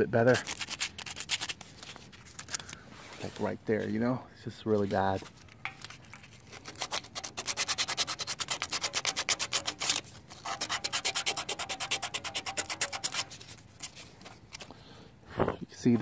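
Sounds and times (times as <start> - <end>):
sandpaper rubbing on metal: 0.2 - 1.6, 6.5 - 14.1.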